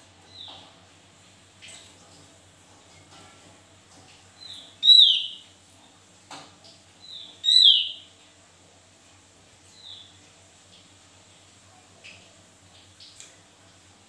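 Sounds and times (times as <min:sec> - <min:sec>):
songbird whistled calls: 0:04.8 - 0:05.4, 0:07.1 - 0:08.1.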